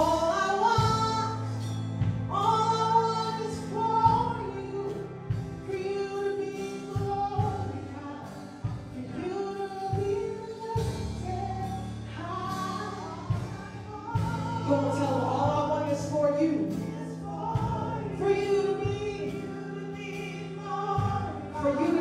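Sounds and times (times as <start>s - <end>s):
woman singing lead: 0.0s - 22.0s
backing singers: 6.6s - 22.0s.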